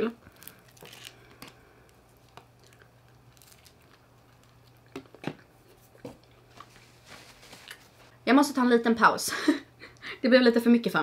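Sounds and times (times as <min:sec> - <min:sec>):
person chewing: 0:00.2 - 0:06.8.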